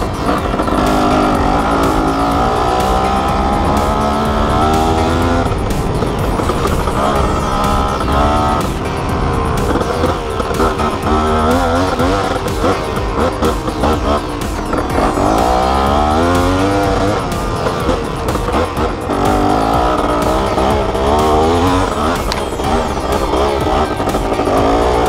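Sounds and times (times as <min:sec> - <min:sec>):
motorcycle engine revving: 0:00.0 - 0:25.0
wind and road rumble: 0:00.0 - 0:25.0.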